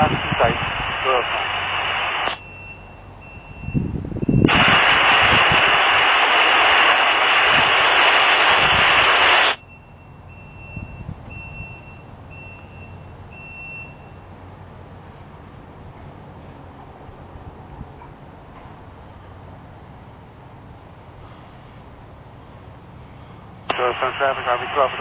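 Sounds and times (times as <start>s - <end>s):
radio static hiss: 0.0s - 2.4s, 4.5s - 9.6s, 23.6s - 25.0s.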